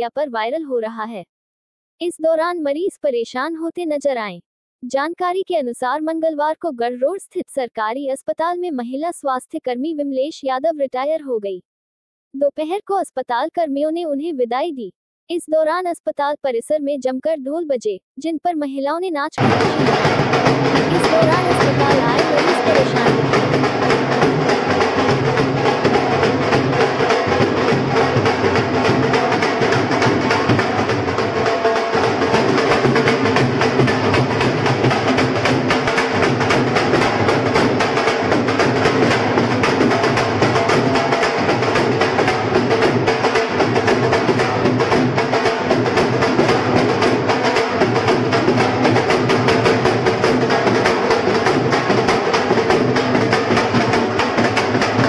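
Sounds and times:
drums played with sticks: 0:19.4 - 0:55.0.

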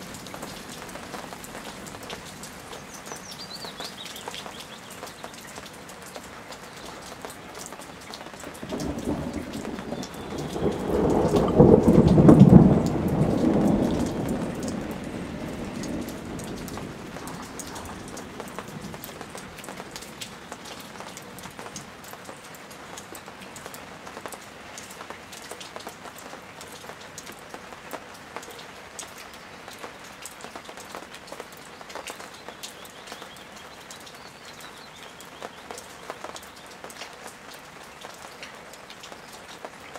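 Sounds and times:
steady rain falling: 0:00.0 - 0:39.9
thunder rolling: 0:08.6 - 0:19.5.

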